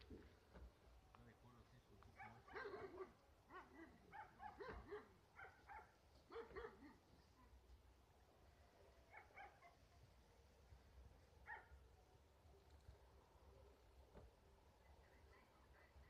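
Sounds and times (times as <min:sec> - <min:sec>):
faint dog barking: 0:02.0 - 0:07.8, 0:08.9 - 0:12.8.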